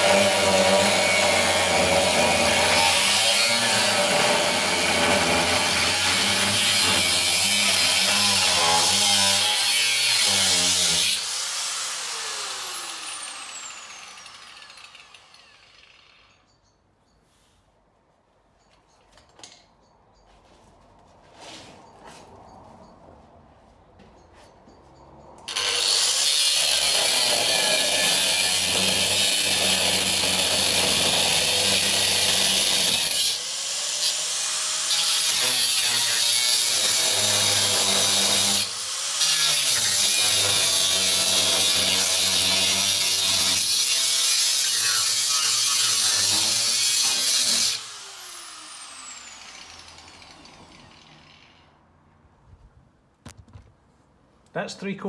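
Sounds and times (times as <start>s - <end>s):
angle grinder cutting steel: 0.0s - 16.5s, 25.5s - 51.7s
grinder spinning down whine: 11.8s - 16.2s.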